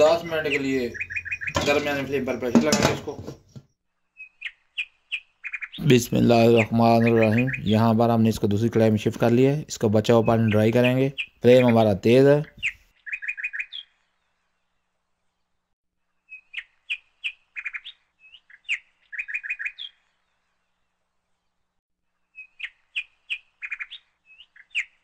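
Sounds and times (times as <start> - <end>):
small bird singing: 0.0 - 25.0.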